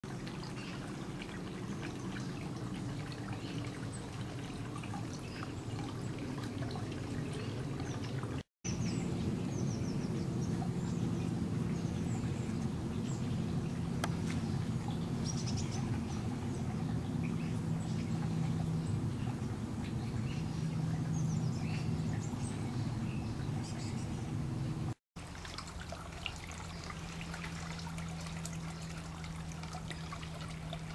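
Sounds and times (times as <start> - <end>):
steady low background noise: 0.1 - 30.9
small birds chirping: 0.3 - 25.0.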